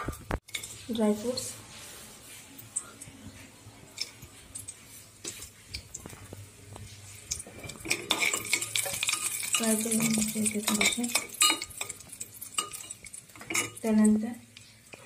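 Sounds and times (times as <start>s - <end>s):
liquid sizzling in hot pot: 0.0s - 15.0s
spoon scraping and clinking on pot: 7.2s - 14.0s.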